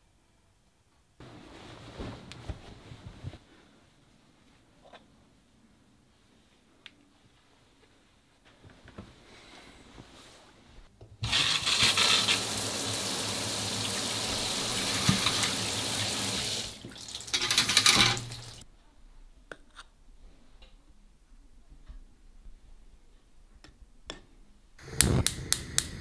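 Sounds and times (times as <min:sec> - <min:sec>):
tap water running into sink: 0:11.2 - 0:18.6.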